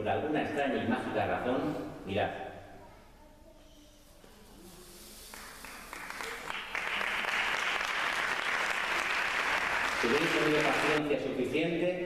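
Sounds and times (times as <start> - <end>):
audience applauding: 5.3 - 11.0.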